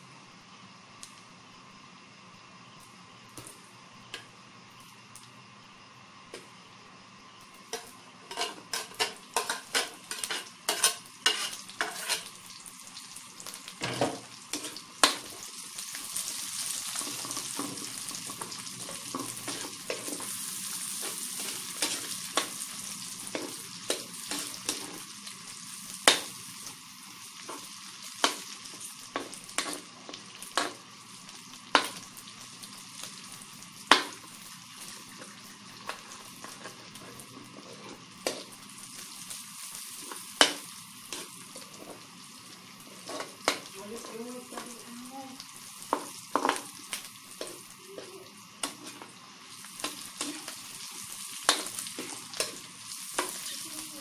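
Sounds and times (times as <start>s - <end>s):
food sizzling in hot oil: 0.0s - 54.0s
spatula scraping wok: 7.7s - 12.4s, 13.8s - 15.2s, 16.6s - 25.1s, 35.1s - 38.5s, 42.9s - 45.0s, 47.4s - 54.0s.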